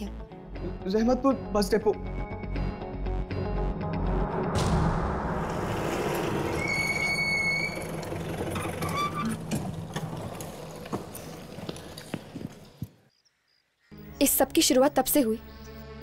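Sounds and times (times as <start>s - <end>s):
jeep engine running: 7.4s - 12.3s.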